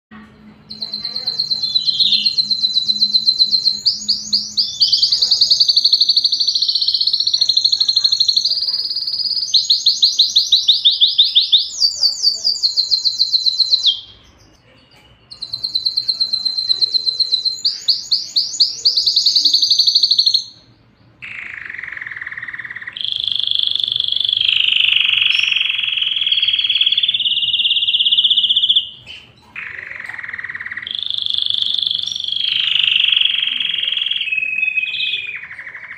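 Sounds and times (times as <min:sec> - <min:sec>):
canary singing trills: 0:00.2 - 0:35.9.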